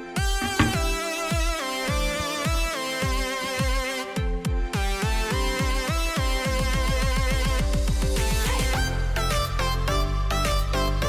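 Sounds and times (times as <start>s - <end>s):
electronic dance music: 0.4s - 0.8s.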